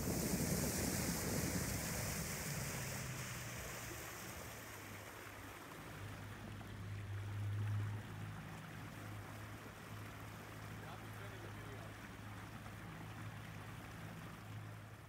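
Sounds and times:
water hissing: 0.0 - 5.5
small boat motor humming: 0.0 - 15.0
wind: 0.0 - 15.0.

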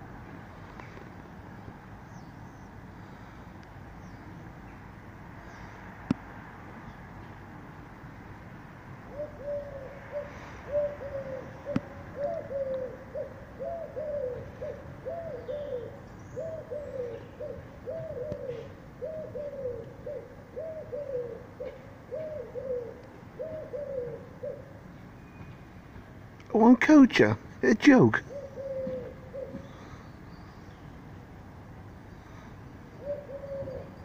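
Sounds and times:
pigeon cooing: 9.0 - 24.8, 28.2 - 30.0, 33.0 - 34.0.

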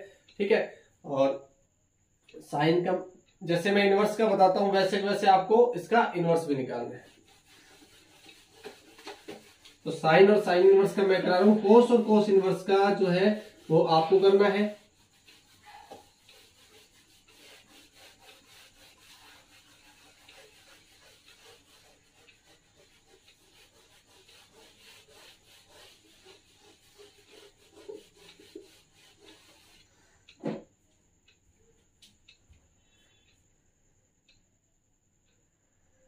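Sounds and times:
eraser rubbing on whiteboard: 4.0 - 30.3
short thump: 30.4 - 30.7.

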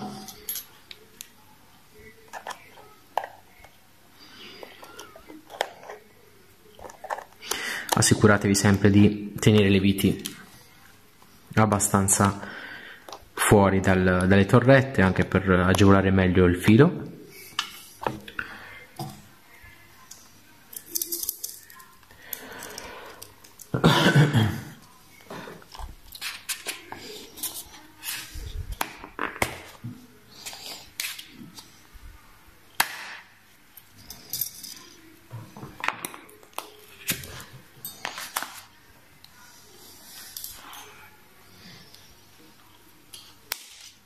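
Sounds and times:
small metal parts clicking: 20.7 - 23.7.

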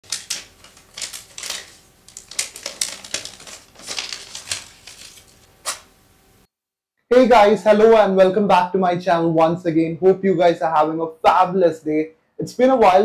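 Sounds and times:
tapping and clicking handling noises: 0.0 - 5.3.

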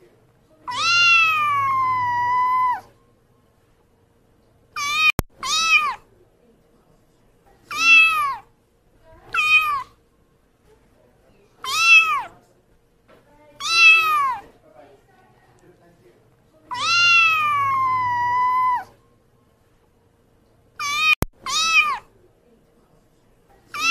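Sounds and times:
kitten meowing: 0.7 - 2.9, 4.8 - 6.0, 7.7 - 8.4, 9.3 - 9.9, 11.6 - 12.3, 13.6 - 14.5, 16.7 - 18.9, 20.8 - 22.1.

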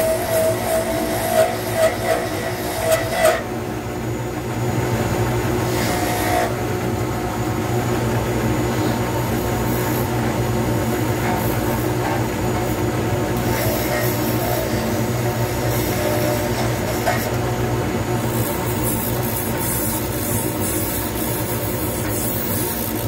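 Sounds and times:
turning tool scraping: 0.0 - 3.5
lathe motor hum: 0.0 - 23.0.

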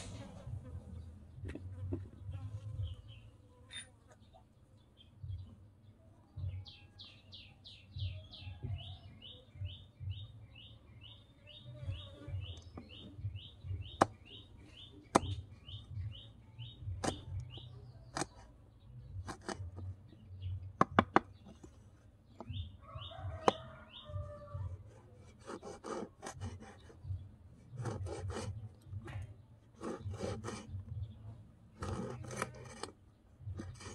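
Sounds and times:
bird chirping: 0.8 - 24.7.

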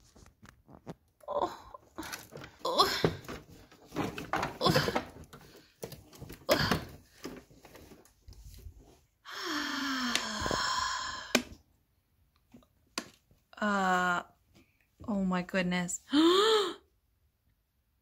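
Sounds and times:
sigh-like ahh: 9.3 - 11.5.

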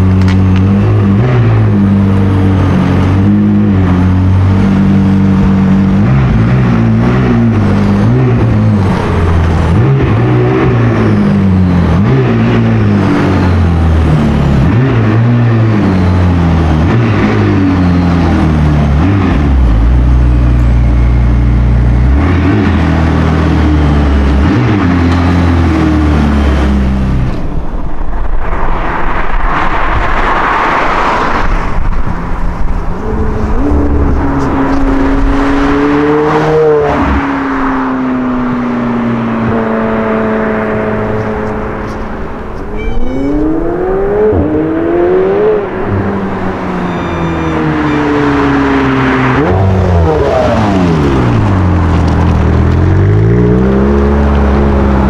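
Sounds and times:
car accelerating away: 29.5 - 55.0.

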